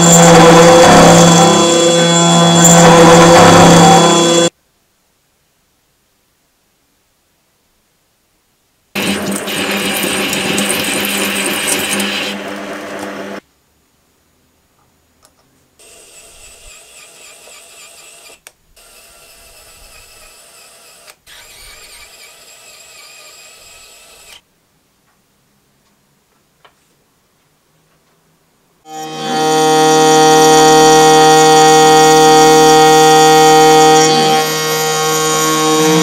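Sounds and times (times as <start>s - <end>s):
lathe cutting metal: 0.0s - 4.5s, 9.0s - 13.4s, 28.9s - 36.0s
lathe motor hum: 0.0s - 4.5s, 9.0s - 13.4s, 28.9s - 36.0s
electric screwdriver whining: 9.0s - 13.4s, 15.8s - 24.4s, 28.9s - 36.0s.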